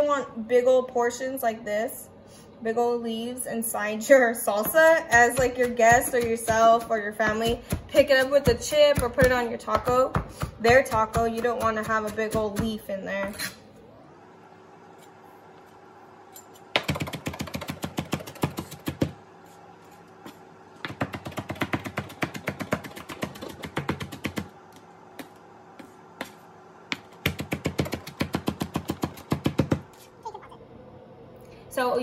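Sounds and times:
knife chopping on cutting board: 4.6 - 13.4, 20.2 - 24.5, 25.2 - 29.9.

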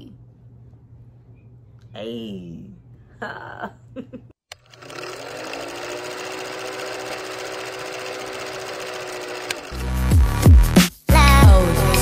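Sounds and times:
faint hum: 0.0 - 4.3
film projector mechanical clatter: 4.5 - 10.0.

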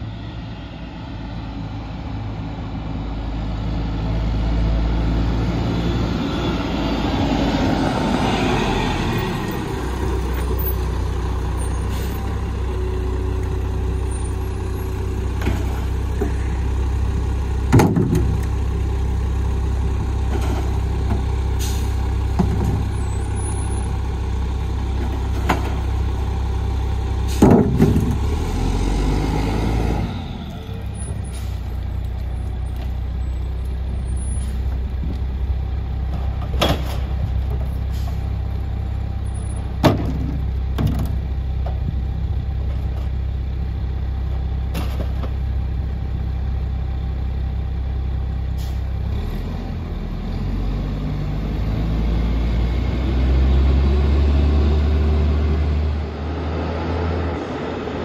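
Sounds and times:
garbage truck idling: 9.1 - 28.7
air brakes hissing: 21.6 - 22.0, 31.1 - 31.7, 37.9 - 38.3, 48.6 - 48.9.

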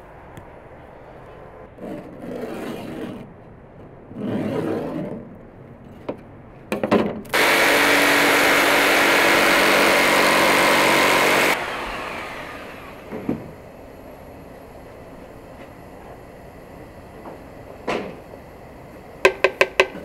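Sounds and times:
small electric motor whirring: 7.4 - 13.3.

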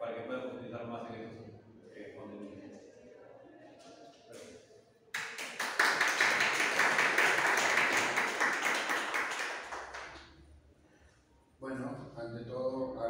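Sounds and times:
audience applauding: 5.2 - 10.2.

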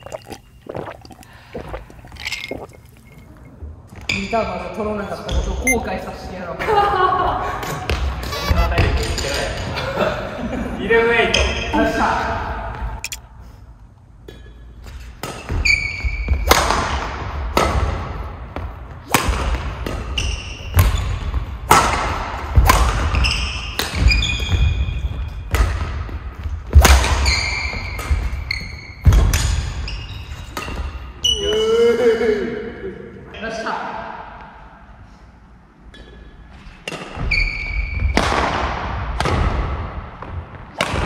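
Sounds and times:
shoes squeaking: 8.0 - 9.4.

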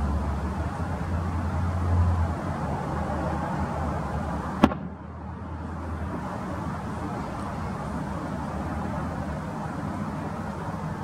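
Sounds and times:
distant firework bang: 4.6 - 5.0.

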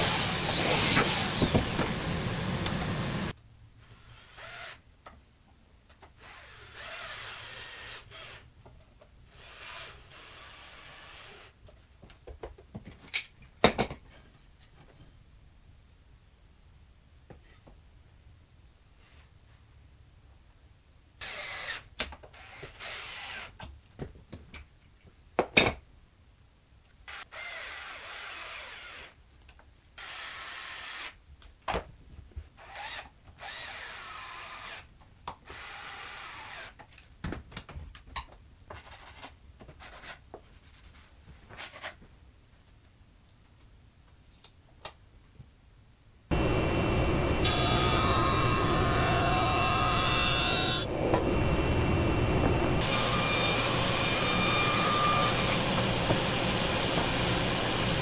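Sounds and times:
cordless drill driving screws: 0.0 - 3.2, 4.0 - 4.8, 32.6 - 34.9, 35.5 - 36.8
jointer running: 52.8 - 58.0.

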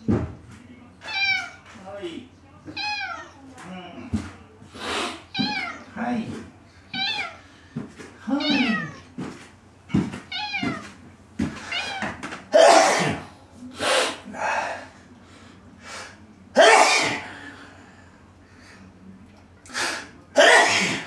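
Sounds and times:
cat meowing: 1.0 - 1.6, 2.7 - 3.4, 5.3 - 5.9, 6.9 - 7.4, 8.3 - 9.1, 10.3 - 11.0.

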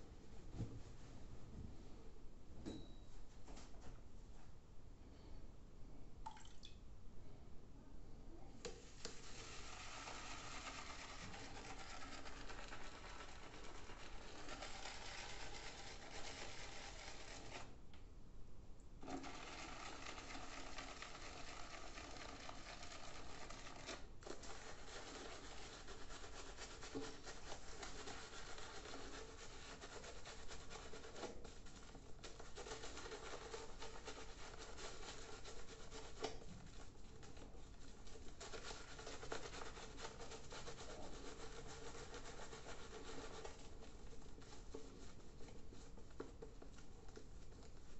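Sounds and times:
shaving brush lathering soap: 9.0 - 17.7, 19.2 - 47.9.

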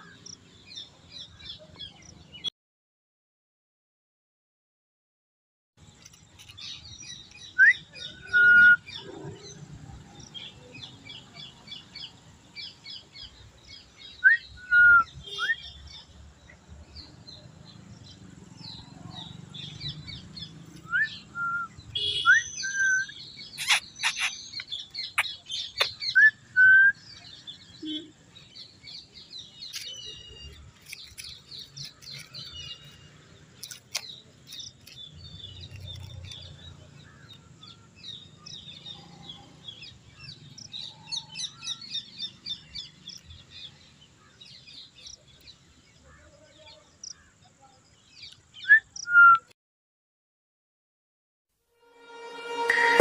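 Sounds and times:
small birds chirping: 5.8 - 49.5
whistled bird notes: 7.1 - 9.1, 14.0 - 16.0, 19.6 - 28.1, 48.6 - 49.5.

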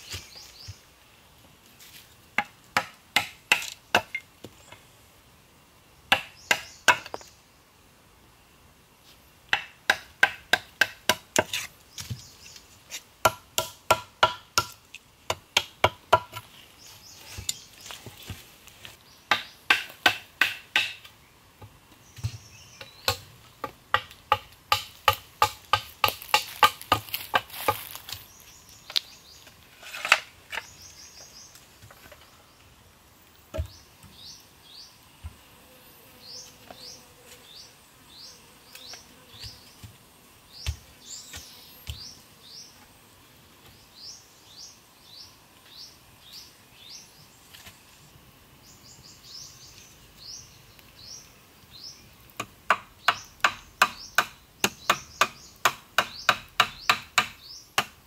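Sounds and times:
bird chirping: 6.3 - 7.4, 21.9 - 23.3, 30.5 - 32.7, 40.5 - 42.8, 48.6 - 52.2, 53.0 - 57.8.

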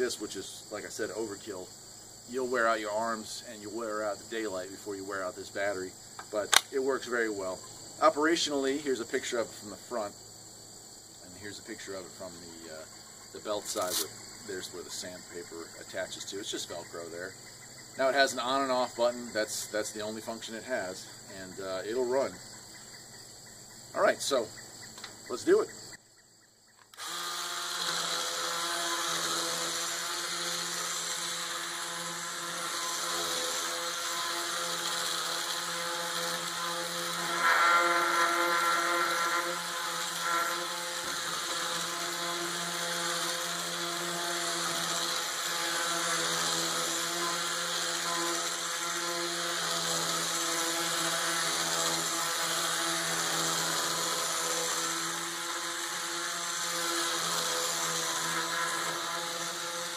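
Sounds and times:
palm sander sanding wood: 2.3 - 10.1, 11.2 - 17.4, 26.9 - 59.9.

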